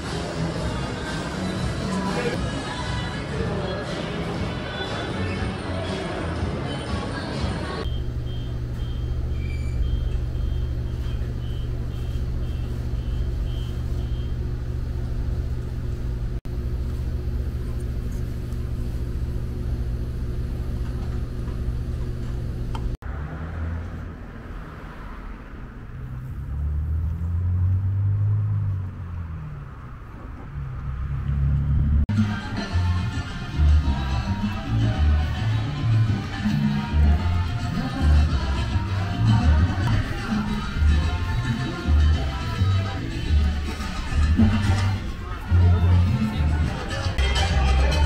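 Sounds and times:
low machine hum: 7.8 - 23.0
high beeps: 7.9 - 14.3
passing cars rumbling: 23.0 - 32.1.

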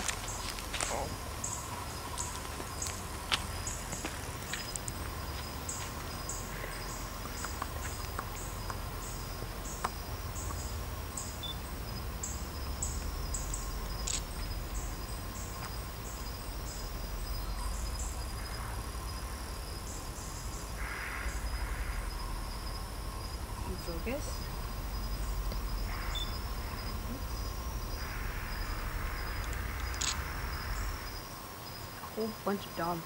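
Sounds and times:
continuous high trill: 0.0 - 33.0
insects chirping: 0.0 - 33.0
low steady rumble: 0.0 - 33.0.

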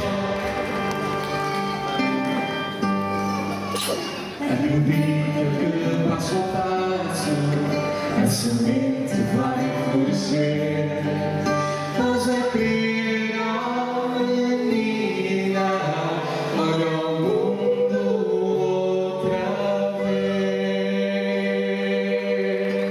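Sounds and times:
group singing in harmony: 0.0 - 2.8, 4.2 - 22.9
acoustic guitars: 0.0 - 22.9.

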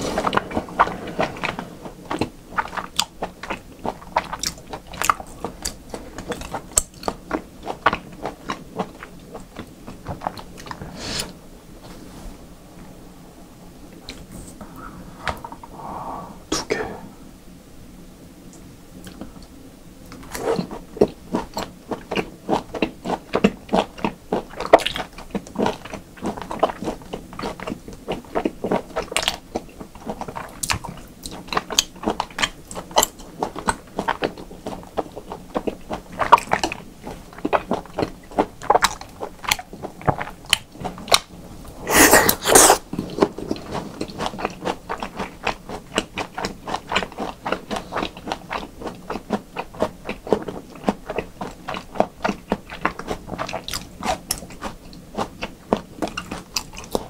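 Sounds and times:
noisy burst: 0.0 - 3.5
wet chewing and mouth clicks: 0.0 - 10.8, 20.2 - 41.3, 41.9 - 57.0.

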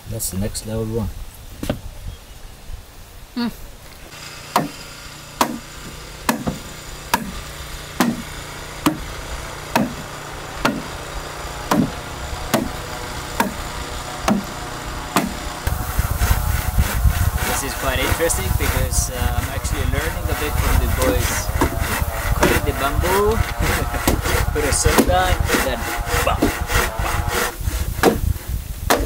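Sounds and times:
machete chopping bamboo: 4.5 - 7.4, 8.0 - 9.1, 9.7 - 15.8, 24.0 - 28.3.

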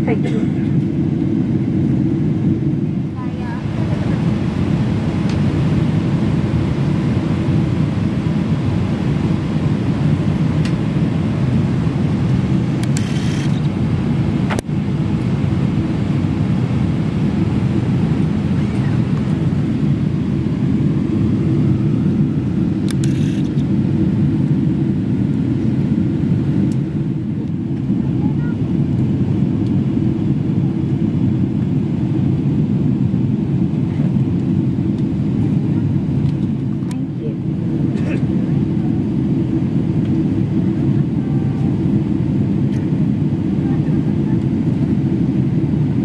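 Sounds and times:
airplane cabin rumble: 0.0 - 46.0.

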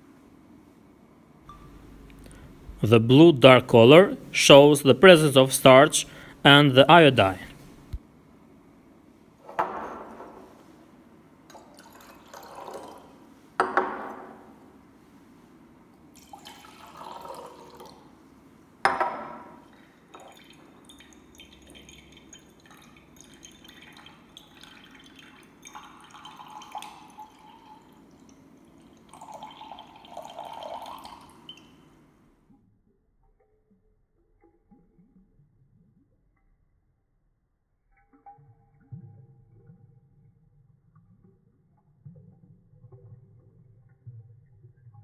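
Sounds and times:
liquid pouring into glass: 1.5 - 4.1, 11.5 - 14.4, 16.2 - 18.1, 18.9 - 31.9, 37.9 - 40.2, 40.9 - 45.0.

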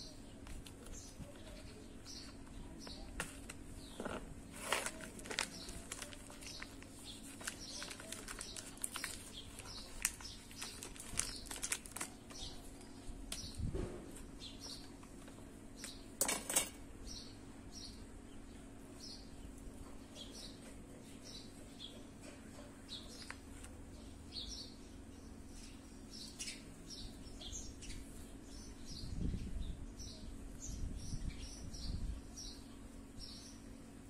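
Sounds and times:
small birds chirping: 0.0 - 16.2, 17.0 - 34.0
plastic and paper wrapping crinkling: 2.9 - 13.1.

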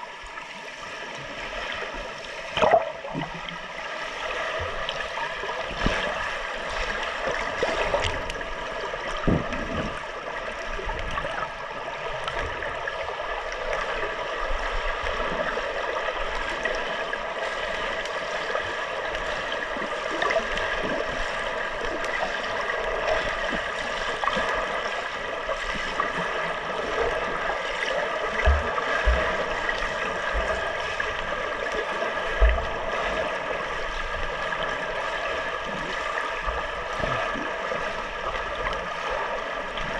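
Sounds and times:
dull thumps of water movement: 9.1 - 10.2, 28.3 - 30.8, 32.3 - 33.1.

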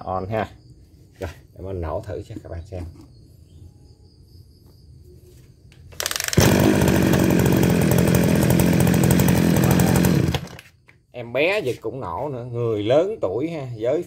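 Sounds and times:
brush cutter engine running: 6.0 - 10.7.

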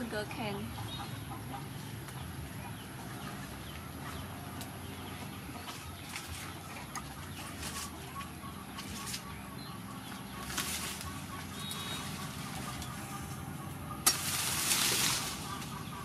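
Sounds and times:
chickens clucking: 0.0 - 16.0
sugar cane leaves rustling: 5.7 - 8.2, 10.3 - 16.0.

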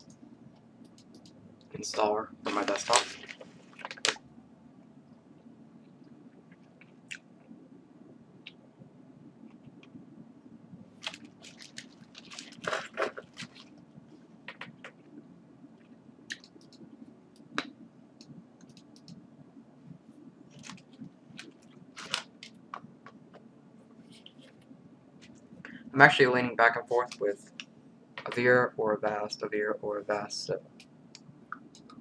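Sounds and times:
low computer hum: 0.0 - 32.0
computer mouse clicks: 0.8 - 1.4, 16.3 - 19.2
handling crackles: 10.9 - 15.1, 20.5 - 25.7.

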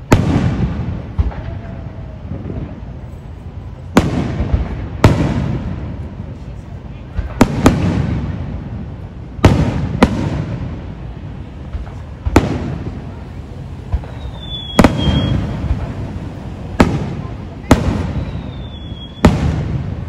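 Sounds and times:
firework bangs with rumble: 0.0 - 2.9, 3.9 - 6.0, 7.1 - 13.2, 13.8 - 20.0
firework high whistle: 13.0 - 19.8.

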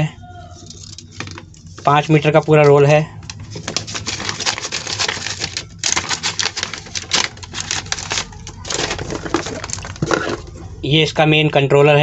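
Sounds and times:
foil bag crinkling: 3.2 - 10.6
rustling in cardboard box: 3.4 - 10.5.

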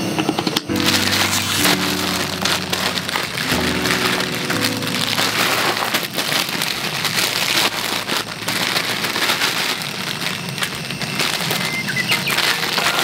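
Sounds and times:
water boiling and bubbling: 5.1 - 13.0.

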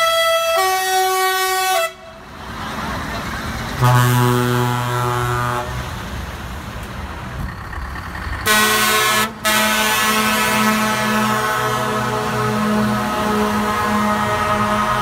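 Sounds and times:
truck air horn blast: 0.0 - 2.1, 3.8 - 5.9, 8.4 - 15.0
truck engine and road noise: 0.0 - 15.0.

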